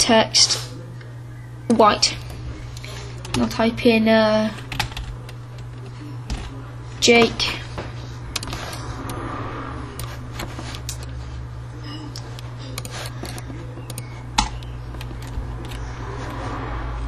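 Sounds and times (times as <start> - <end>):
steady low hum: 0.0 - 17.0
computer mouse clicks: 12.2 - 15.8.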